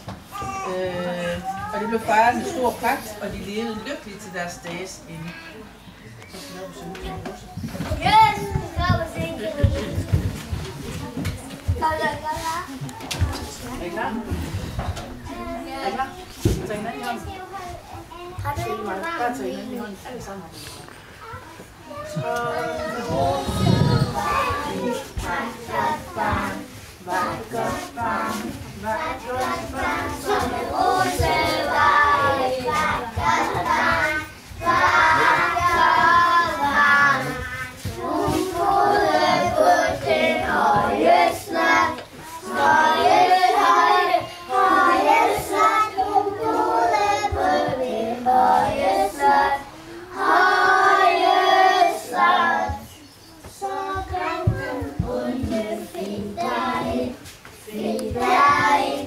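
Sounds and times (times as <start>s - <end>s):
young children singing: 21.8s - 59.0s.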